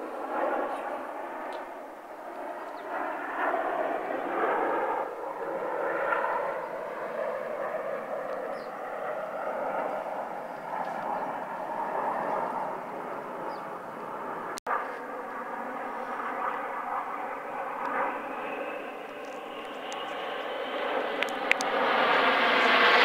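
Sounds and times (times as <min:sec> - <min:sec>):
distant jet engines passing overhead: 0:00.0 - 0:23.0.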